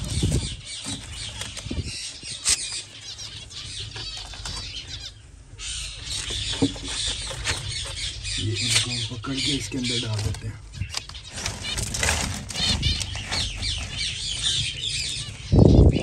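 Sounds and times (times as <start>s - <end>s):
finches chirping: 0.0s - 16.0s
wings flapping: 11.2s - 14.6s.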